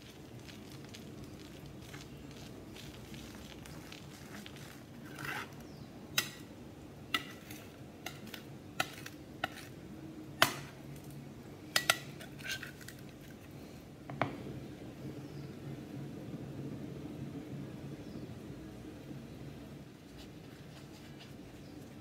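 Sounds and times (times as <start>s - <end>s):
knife scraping on glass: 5.0s - 5.6s, 7.1s - 9.8s, 11.8s - 13.0s.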